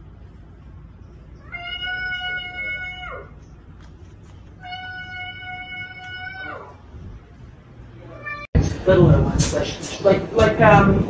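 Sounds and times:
cat meowing: 1.4 - 3.4, 4.6 - 6.8, 8.1 - 8.5.

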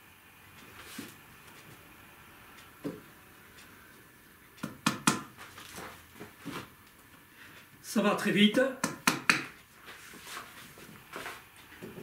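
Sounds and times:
tack hammer tapping: 4.6 - 5.3, 8.8 - 9.6.

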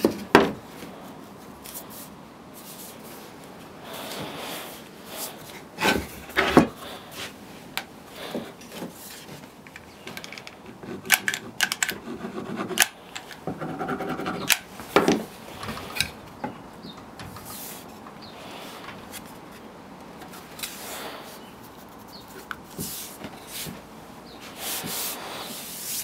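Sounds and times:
wood rubbing and scraping: 8.2 - 26.0.

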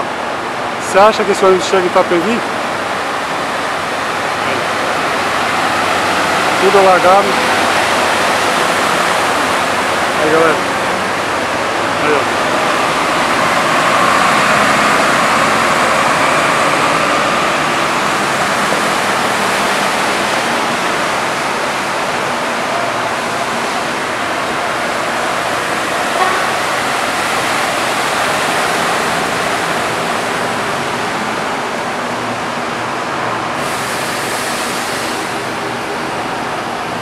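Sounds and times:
vehicles wading through floodwater: 0.0 - 37.0
bus throwing up spray: 33.5 - 35.9.

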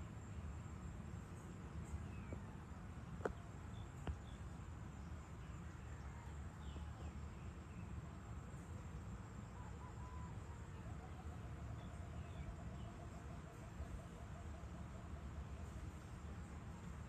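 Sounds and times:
faint bird chirps: 8.8 - 17.0.

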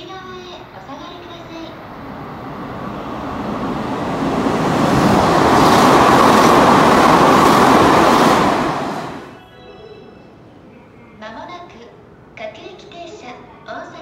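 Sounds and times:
electric train passing at speed: 0.0 - 9.4.

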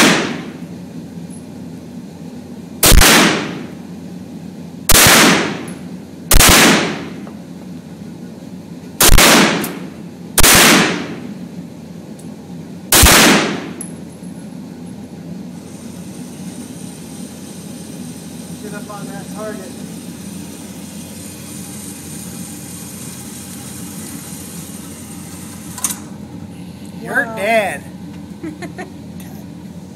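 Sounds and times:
gunshots with echo: 0.0 - 0.5, 2.8 - 3.6, 4.9 - 5.6, 6.3 - 7.1, 10.4 - 11.2, 12.9 - 13.8.

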